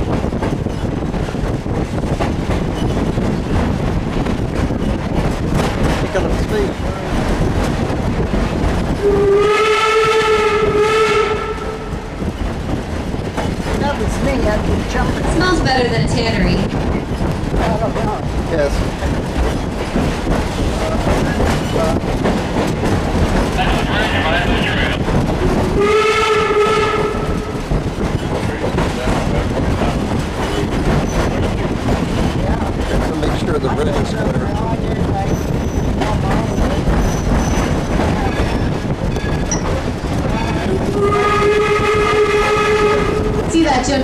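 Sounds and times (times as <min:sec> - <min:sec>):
train running rumble: 0:00.0 - 0:44.0
wheels clacking on rails: 0:00.0 - 0:44.0
locomotive horn blast: 0:09.0 - 0:12.0, 0:25.7 - 0:27.6, 0:40.9 - 0:43.5.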